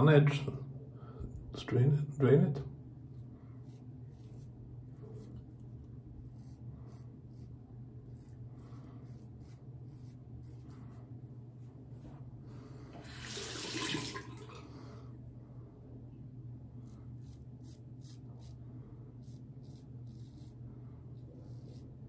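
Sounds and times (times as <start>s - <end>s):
razor scraping stubble: 3.1s - 12.3s, 16.7s - 22.0s.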